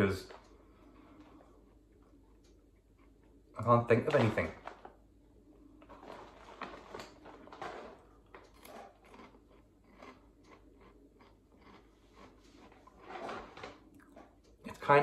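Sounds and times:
person chewing crunchy snacks: 5.8 - 14.4.

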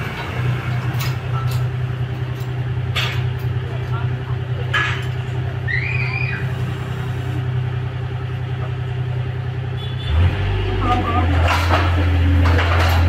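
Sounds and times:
engine droning: 0.0 - 13.0
high squeal: 5.6 - 6.6.

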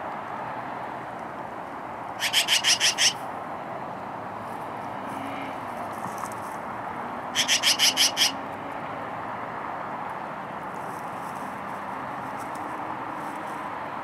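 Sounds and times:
steady background noise: 0.0 - 14.0
magpies chattering: 2.2 - 3.2, 7.4 - 8.4.

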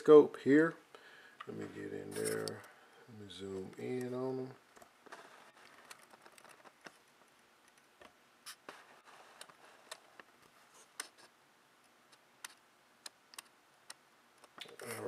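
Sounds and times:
small irregular clicks: 3.7 - 15.0.

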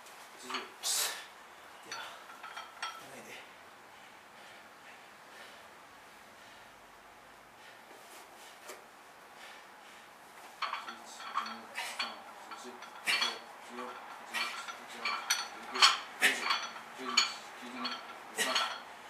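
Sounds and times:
weight plates clanking: 1.9 - 3.0, 10.6 - 18.9.

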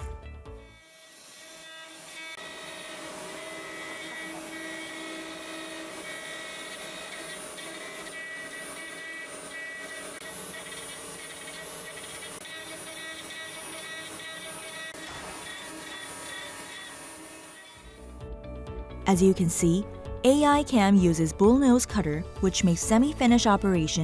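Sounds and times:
cnc machine spindle whine: 0.8 - 18.0.

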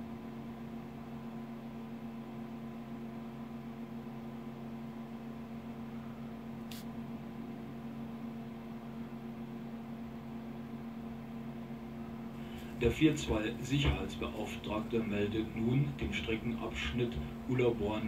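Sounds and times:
machine hum: 2.5 - 18.0
low hiss: 6.7 - 6.9.

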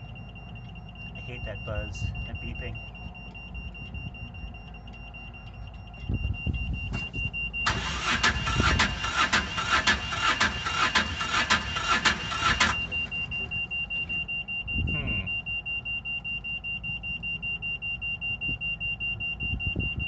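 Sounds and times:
diesel engine cranking: 0.0 - 14.6.

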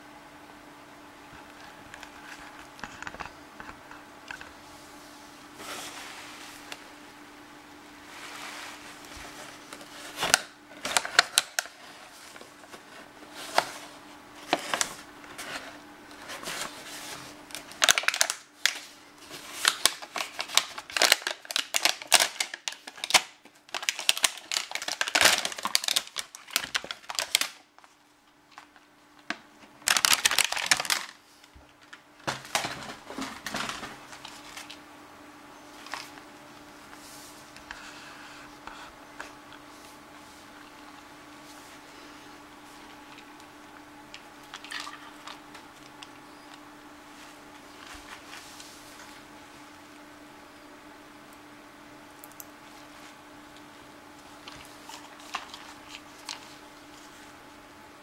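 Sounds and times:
plastic blister pack crinkling: 9.0 - 13.7, 16.1 - 34.8, 42.8 - 46.6, 54.4 - 57.3.

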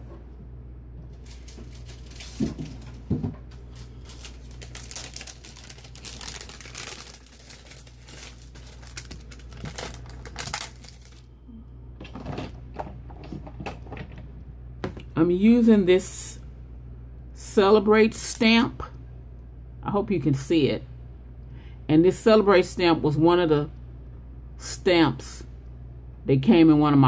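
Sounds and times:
plastic sheet crinkling: 1.1 - 11.3.

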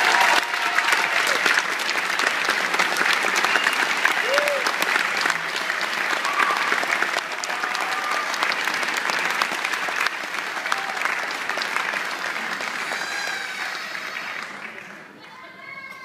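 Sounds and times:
whoops: 0.0 - 1.4, 3.6 - 4.8, 6.2 - 6.8, 7.4 - 8.4
audience applauding: 0.0 - 15.2.

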